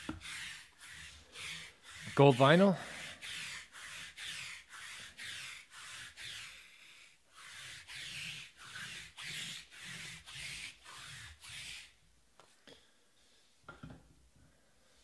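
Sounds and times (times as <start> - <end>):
cards sliding with rubbing swish: 0.0 - 12.0.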